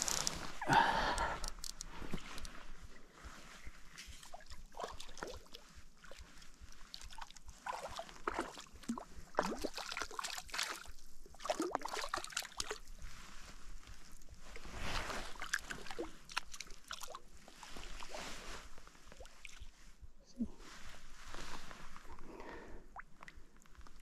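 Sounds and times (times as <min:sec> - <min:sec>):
water sloshing and splashing: 0:01.5 - 0:19.8.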